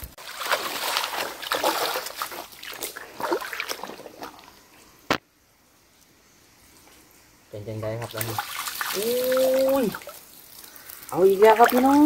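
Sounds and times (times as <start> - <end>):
boots wading through water: 0.2 - 4.6.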